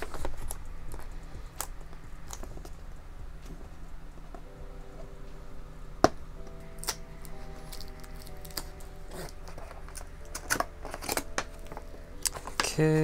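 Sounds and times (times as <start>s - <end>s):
soft background music: 0.0s - 13.0s
packaging click: 6.5s - 12.8s.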